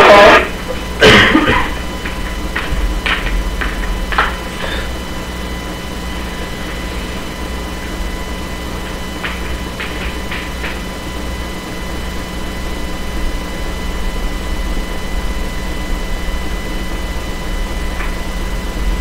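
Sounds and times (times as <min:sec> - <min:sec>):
faint steady hum: 0:00.0 - 0:19.0
steady low rumble: 0:00.0 - 0:19.0.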